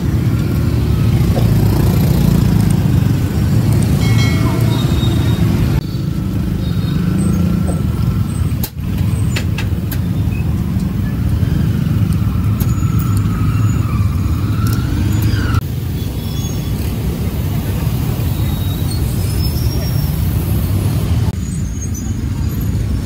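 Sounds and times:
motorbikes passing: 0.0s - 23.0s
street traffic rumble: 0.0s - 23.0s.

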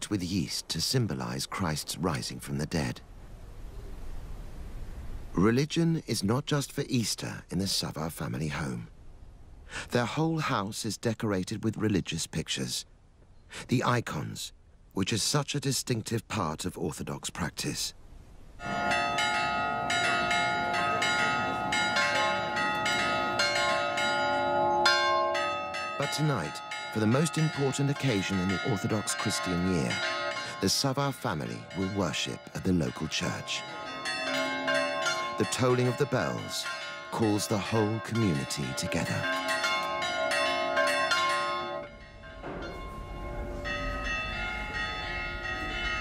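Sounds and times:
church bells ringing rapidly: 18.6s - 46.0s.

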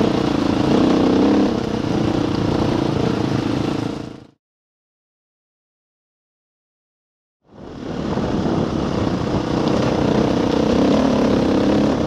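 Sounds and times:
motorcycle engine running: 0.0s - 4.4s, 7.7s - 12.0s.

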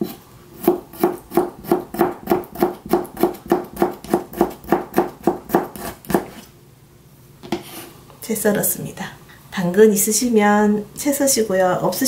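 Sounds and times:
knife chopping on cutting board: 0.0s - 6.5s.

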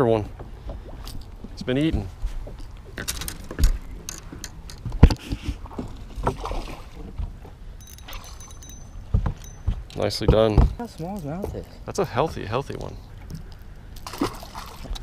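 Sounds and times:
fishing tackle clicking and knocking: 2.6s - 5.2s, 7.8s - 13.7s.

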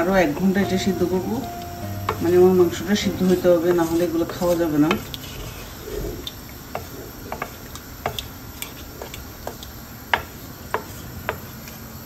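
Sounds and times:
low hiss: 0.0s - 12.0s
curry simmering with soft pops: 2.1s - 12.0s
spoon stirring in metal pot: 3.0s - 11.8s.

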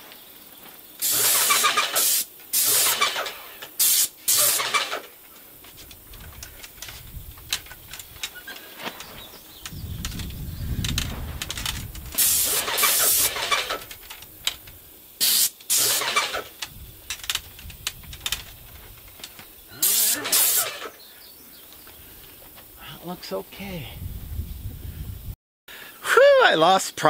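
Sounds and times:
paint sprayer hissing: 1.0s - 21.1s.

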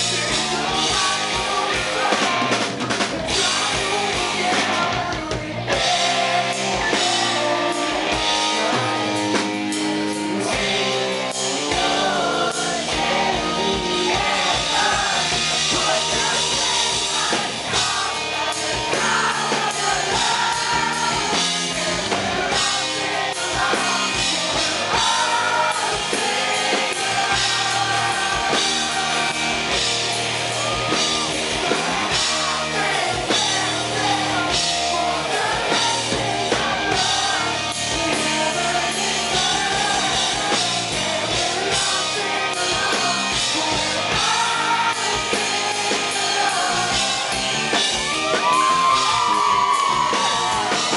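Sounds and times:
man singing into a microphone: 0.0s - 29.4s, 31.6s - 47.5s
rock band with drums: 0.0s - 50.9s.

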